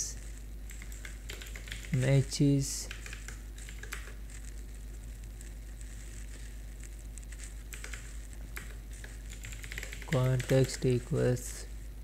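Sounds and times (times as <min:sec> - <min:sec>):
low electrical hum: 0:00.0 - 0:12.0
keyboard keystrokes: 0:00.7 - 0:02.0, 0:07.7 - 0:11.0.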